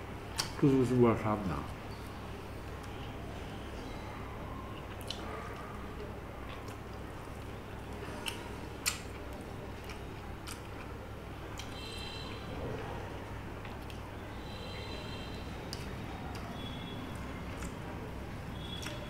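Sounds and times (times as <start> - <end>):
chewing: 4.8 - 11.0.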